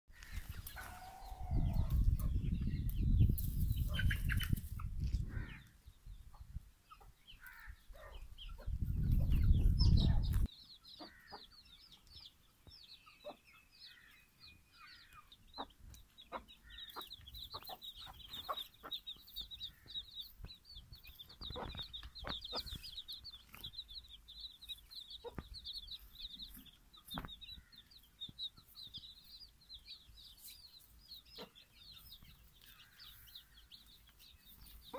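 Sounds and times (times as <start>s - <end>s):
chicks peeping: 0.2s - 34.9s
hen clucking: 15.1s - 28.0s, 31.2s - 34.9s.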